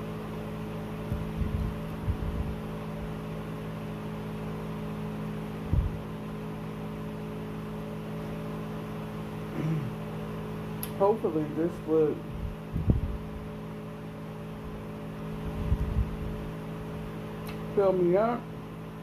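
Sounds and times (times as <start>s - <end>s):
appliance mechanical hum: 0.0s - 19.0s
dull low thumps: 1.1s - 2.6s, 5.7s - 6.1s, 12.3s - 13.3s.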